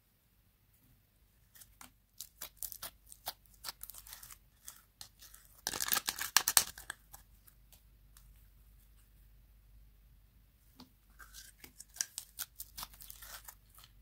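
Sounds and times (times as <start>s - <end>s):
slime crackling and popping: 1.6s - 7.2s, 11.7s - 13.9s.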